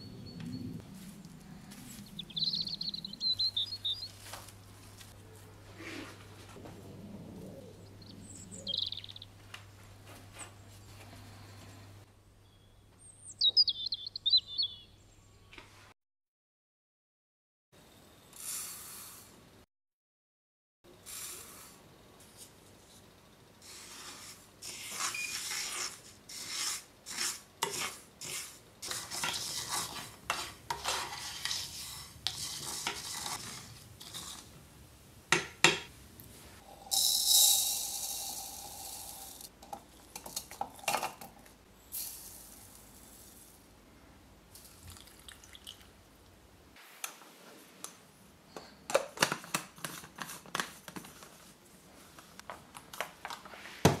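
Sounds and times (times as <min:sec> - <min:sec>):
spoon stirring seeds in frying pan: 0:23.6 - 0:34.6, 0:36.6 - 0:41.1.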